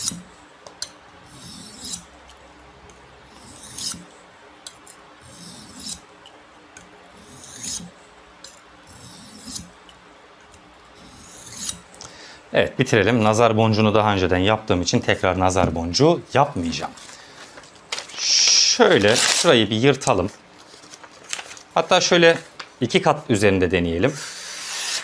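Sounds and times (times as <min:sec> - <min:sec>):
knife scraping on sharpening stone: 0:01.3 - 0:02.1, 0:03.3 - 0:04.0, 0:05.2 - 0:06.0, 0:07.2 - 0:09.7, 0:11.0 - 0:11.9.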